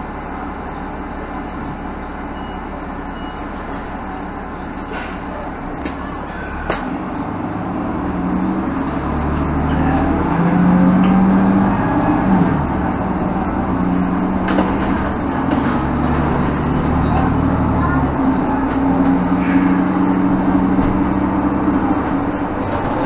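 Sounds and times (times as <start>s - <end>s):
diesel bus engine drone: 0.0s - 23.0s
road noise: 0.0s - 23.0s.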